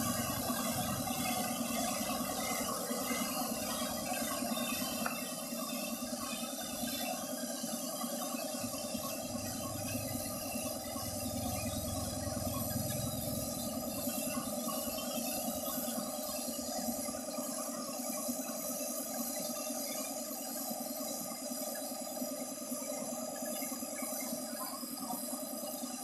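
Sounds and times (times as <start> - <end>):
machine hum: 0.0 - 7.0, 8.4 - 17.0
spray gun hissing: 0.0 - 17.1.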